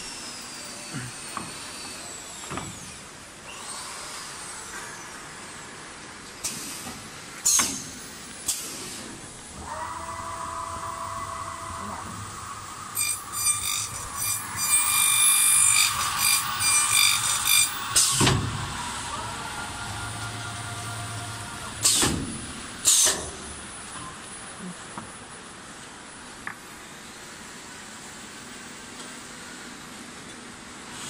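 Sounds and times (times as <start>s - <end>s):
pneumatic thump: 2.4s - 3.0s, 6.4s - 9.2s, 17.6s - 18.8s, 21.8s - 23.4s
spindle motors whining: 9.5s - 23.1s
harsh high-pitched cutting noise: 11.8s - 22.0s.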